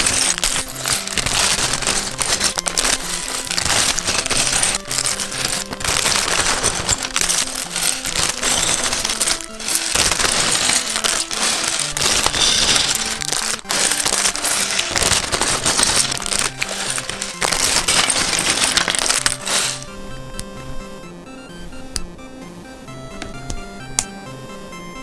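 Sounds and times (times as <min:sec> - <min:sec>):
plastic bag crinkling: 0:00.0 - 0:19.9
plastic pieces rattling in a bag: 0:00.0 - 0:19.9
background music: 0:00.0 - 0:25.0.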